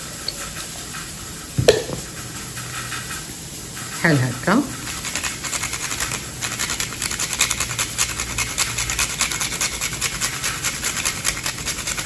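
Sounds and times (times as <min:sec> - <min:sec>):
nutmeg scraping on metal grater: 0:04.8 - 0:12.0.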